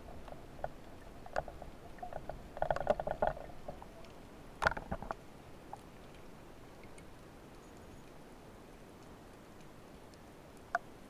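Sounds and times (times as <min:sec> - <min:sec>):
underwater gear clicks: 0:00.6 - 0:05.2.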